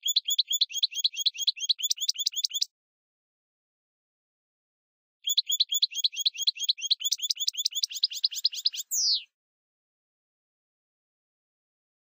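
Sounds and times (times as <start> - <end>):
bird trilling: 0.0 - 2.7, 5.3 - 9.3.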